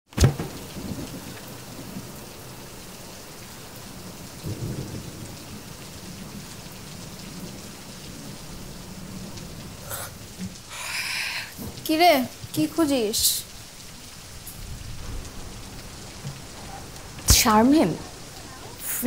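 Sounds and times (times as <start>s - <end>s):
heavy rain: 0.1s - 19.0s
thunder rumble: 0.1s - 19.0s.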